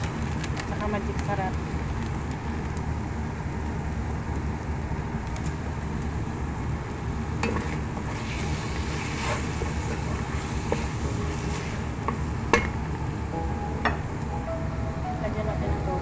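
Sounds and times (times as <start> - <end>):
chicken frying in a pan: 6.8 - 12.4
steady low rumble: 9.7 - 16.0.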